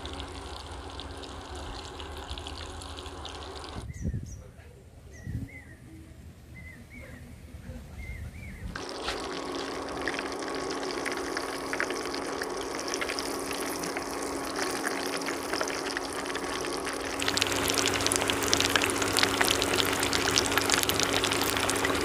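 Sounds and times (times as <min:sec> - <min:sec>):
hot oil sizzling and crackling: 0:00.0 - 0:03.8, 0:08.8 - 0:22.0
steady low hum: 0:00.0 - 0:04.0, 0:08.6 - 0:22.0.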